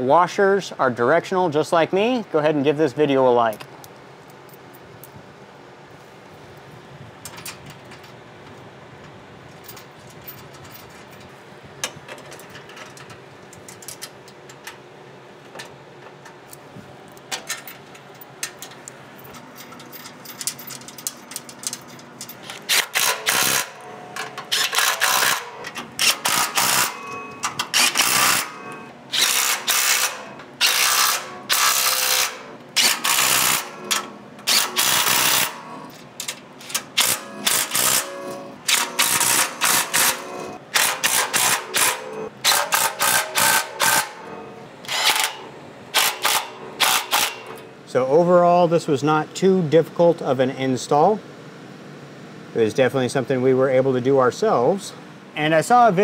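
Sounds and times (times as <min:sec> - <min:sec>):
bolts and washers clicking: 0:09.0 - 0:14.8, 0:15.4 - 0:44.1
impact driver bursts: 0:24.5 - 0:27.0, 0:27.7 - 0:33.8, 0:34.5 - 0:35.6, 0:37.0 - 0:44.2, 0:44.9 - 0:47.6.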